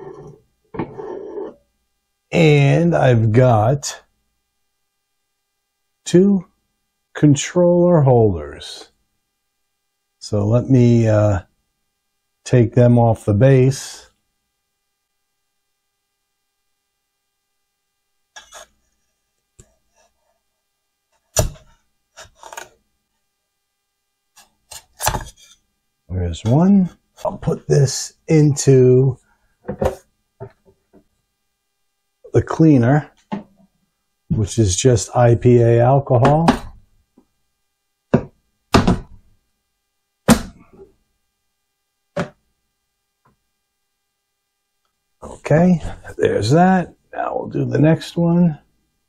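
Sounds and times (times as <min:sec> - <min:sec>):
loud knock: 0:38.1 - 0:39.2.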